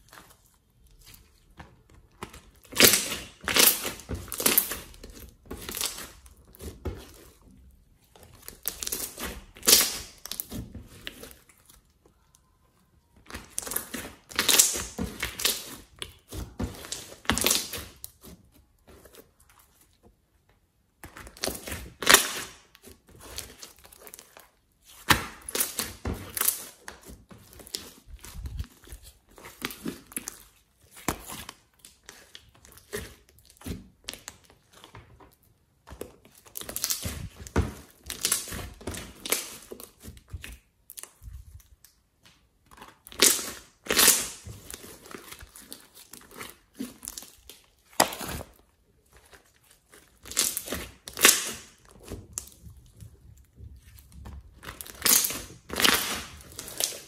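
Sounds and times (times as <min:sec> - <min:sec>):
slime squelching: 0:00.0 - 0:57.0.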